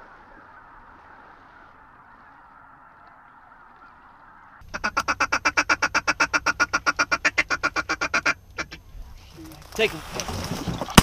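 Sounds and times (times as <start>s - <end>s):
rapid waterfowl call blasts: 0.0s - 8.8s
distant flock of geese calling: 0.0s - 9.4s.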